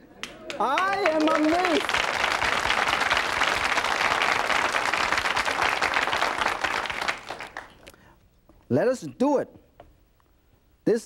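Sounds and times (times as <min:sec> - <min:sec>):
audience applauding: 0:00.2 - 0:07.9.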